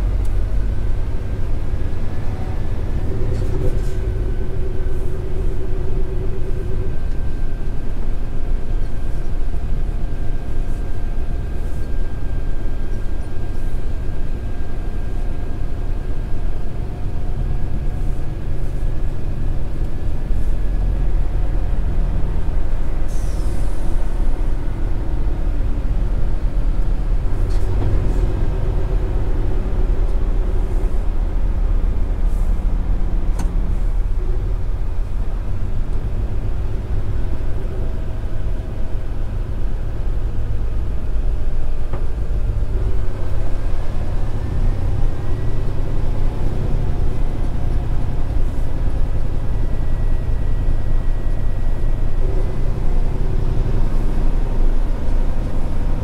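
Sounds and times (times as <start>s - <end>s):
road noise: 0.0s - 56.0s
truck diesel engine drone: 0.0s - 56.0s.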